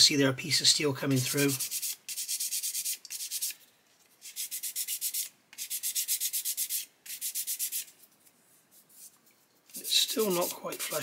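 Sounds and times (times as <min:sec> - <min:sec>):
sanding stick rubbing back and forth: 0:01.3 - 0:03.6, 0:04.2 - 0:08.0, 0:09.7 - 0:11.0.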